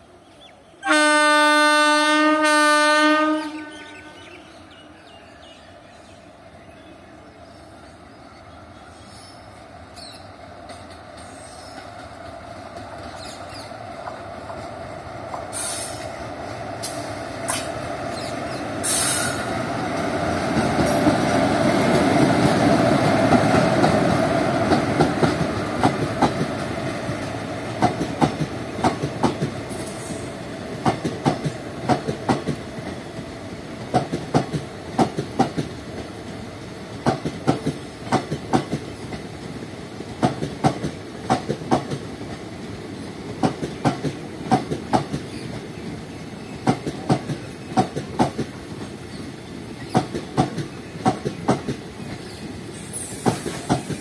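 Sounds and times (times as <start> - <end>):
electric locomotive passing: 0.0 - 54.0
short high hisses: 15.5 - 16.1, 18.8 - 19.5, 52.7 - 54.0.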